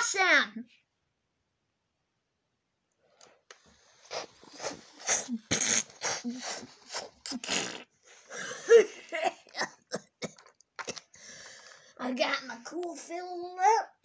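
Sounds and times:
child making train chuffs: 4.1s - 7.9s.

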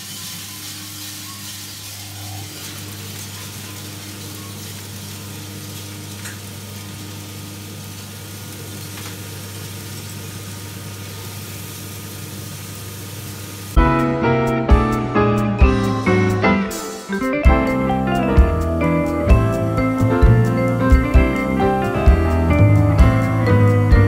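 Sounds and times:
coffee beans rustling: 0.0s - 7.4s
motor and fan hum: 17.6s - 24.0s.

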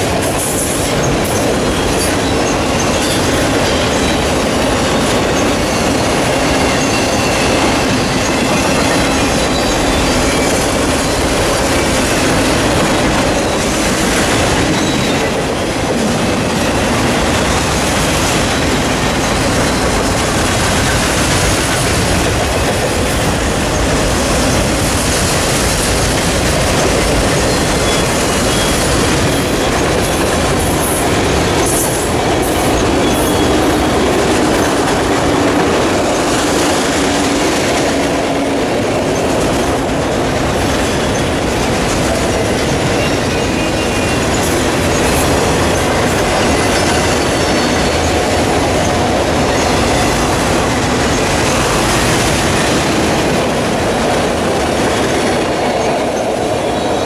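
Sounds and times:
freight train wheels clattering: 0.0s - 57.0s
high wheel squeal: 0.5s - 15.7s, 27.0s - 34.8s, 42.5s - 51.9s.

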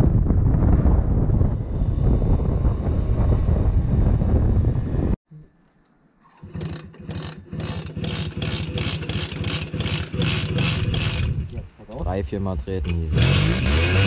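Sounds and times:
wind on microphone: 0.0s - 5.2s, 10.6s - 11.8s
moped engine kick-started: 6.2s - 11.5s
two-stroke moped engine running: 6.3s - 11.5s, 12.8s - 14.0s.

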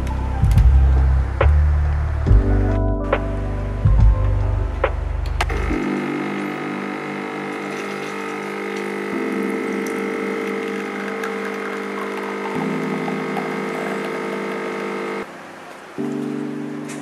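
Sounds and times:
espresso machine pump humming: 5.4s - 15.3s.

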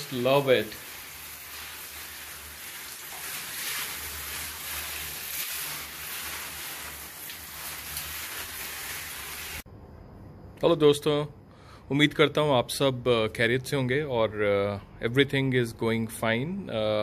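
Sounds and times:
shower spray splashing: 0.0s - 9.7s.

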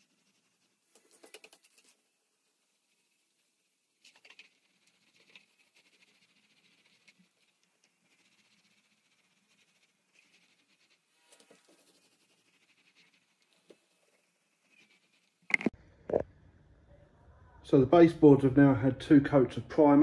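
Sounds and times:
paint roller sticky crackle: 0.0s - 15.8s.

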